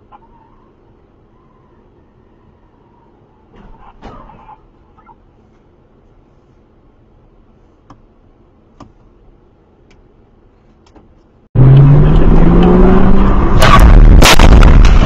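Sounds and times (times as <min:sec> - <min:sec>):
faint road rumble: 0:00.0 - 0:15.0
car engine revving: 0:11.6 - 0:15.0.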